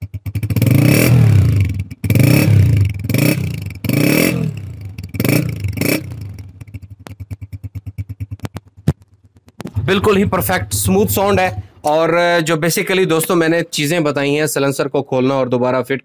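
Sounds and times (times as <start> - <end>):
motorcycle engine idling and revving: 0.0 - 11.8.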